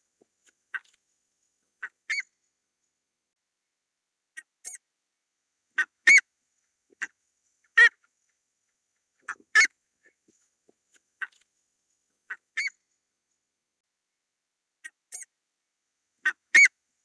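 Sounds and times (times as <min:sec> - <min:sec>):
ibises calling: 0:01.8 - 0:02.3, 0:05.8 - 0:06.2, 0:09.2 - 0:10.2, 0:12.3 - 0:12.8, 0:16.2 - 0:16.8.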